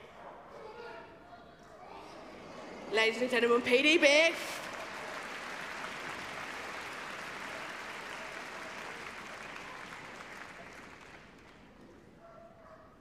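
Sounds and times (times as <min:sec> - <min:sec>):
audience applauding: 0:03.0 - 0:11.8.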